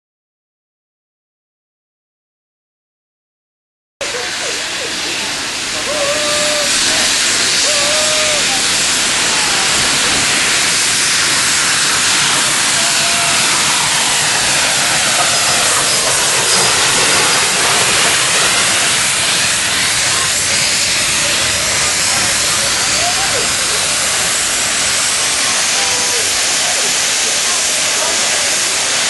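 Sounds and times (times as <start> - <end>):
steam hissing: 4.0 - 29.0
short high squeals: 5.8 - 9.1.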